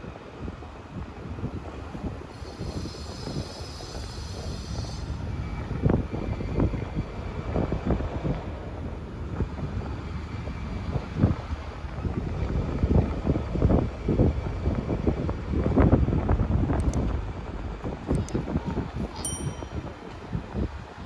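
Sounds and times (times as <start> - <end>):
wind buffeting microphone: 0.0 - 21.0
thin high whine: 19.2 - 20.3.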